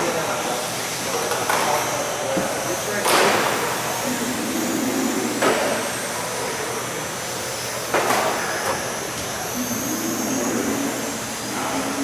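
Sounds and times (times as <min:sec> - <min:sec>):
toy car motor whine: 0:08.4 - 0:12.0.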